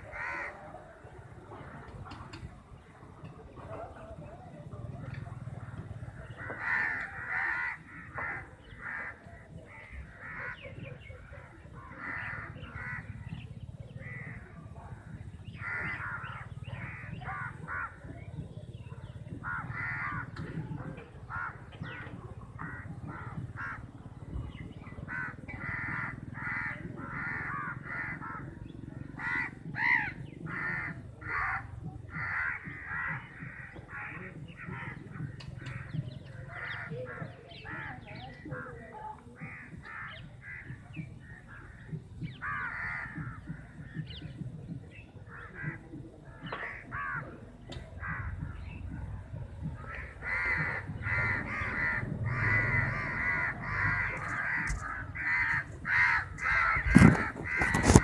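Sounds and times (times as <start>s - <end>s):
crows cawing: 0.0s - 0.7s, 5.6s - 13.2s, 14.0s - 18.1s, 19.4s - 20.5s, 21.2s - 24.0s, 25.1s - 37.9s, 39.4s - 44.1s, 45.3s - 47.4s, 48.0s - 48.8s, 49.8s - 58.0s.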